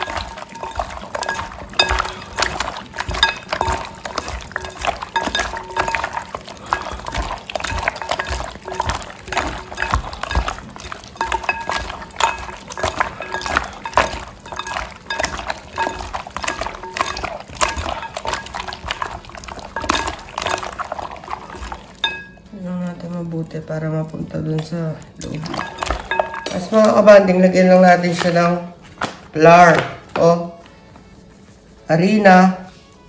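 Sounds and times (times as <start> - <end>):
pieces clinking against glass bowl: 0.0 - 22.5, 25.2 - 27.1
wet squelching of kneaded chicken: 0.0 - 27.2.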